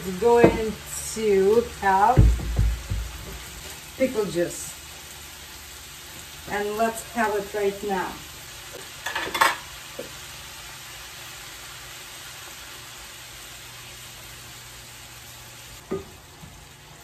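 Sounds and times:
vegetables sizzling in a pan: 0.0s - 17.0s.

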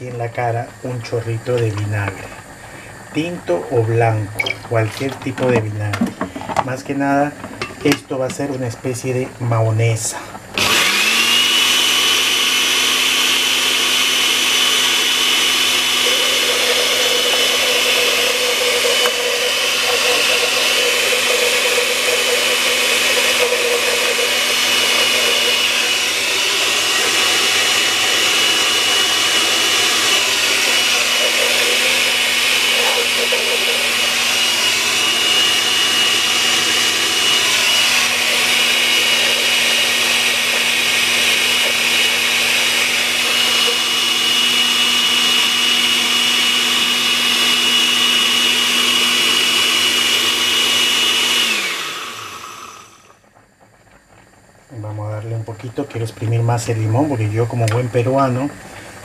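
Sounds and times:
blender motor whining: 10.5s - 53.3s.

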